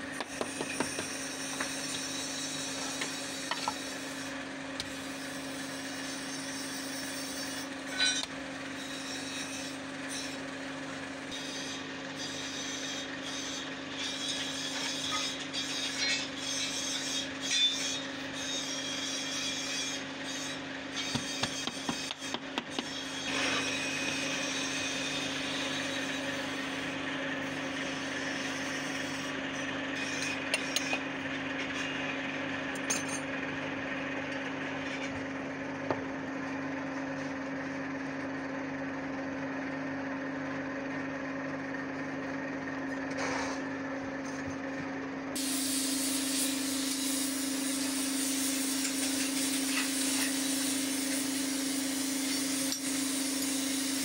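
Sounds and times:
steady motor hum: 0:00.0 - 0:54.0
furnace fire rushing hiss: 0:45.4 - 0:54.0.

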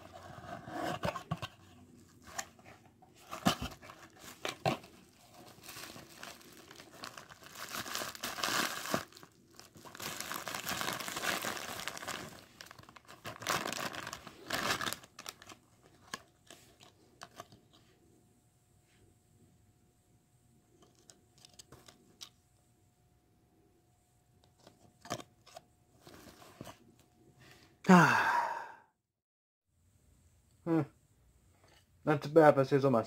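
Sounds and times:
bubble wrap crinkling and tearing: 0:03.2 - 0:17.4.

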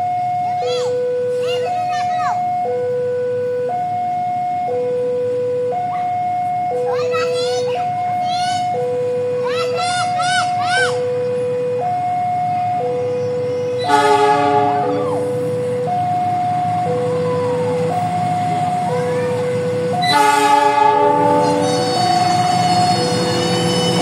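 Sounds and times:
level crossing two-tone alarm: 0:00.0 - 0:24.0
train horn: 0:13.8 - 0:15.4, 0:20.0 - 0:24.0.

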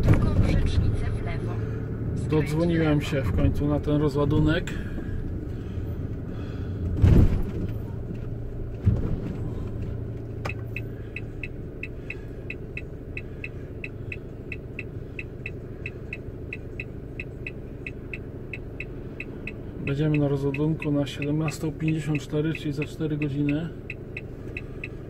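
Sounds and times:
truck engine idling: 0:00.0 - 0:25.0
heavy thump: 0:06.8 - 0:07.8
turn signal ticking: 0:09.7 - 0:25.0.

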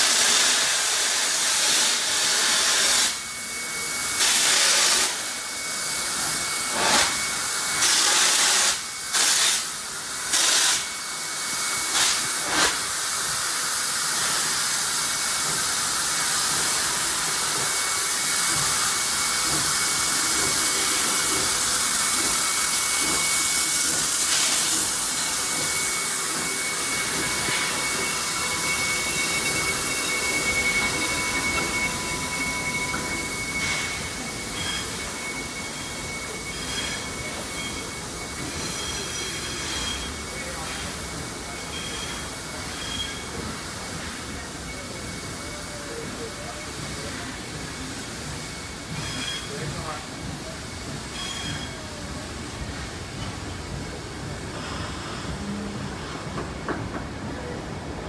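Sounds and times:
steam hissing from locomotive: 0:00.0 - 0:58.0.

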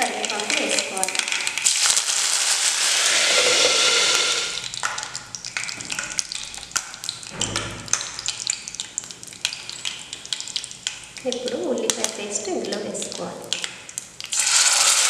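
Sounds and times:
leaves sizzling in hot oil: 0:00.0 - 0:05.7, 0:14.2 - 0:15.0
oil crackling and popping: 0:00.0 - 0:15.0.

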